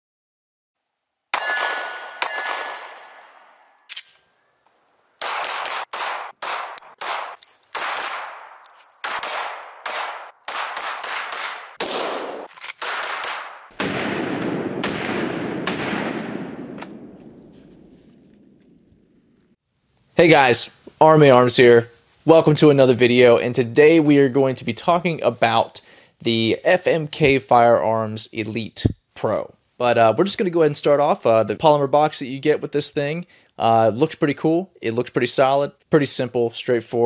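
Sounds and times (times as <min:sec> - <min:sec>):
pistol shots: 0:01.3 - 0:04.2, 0:05.2 - 0:18.3
ringing metallic hits: 0:01.4 - 0:04.6, 0:06.7 - 0:07.0.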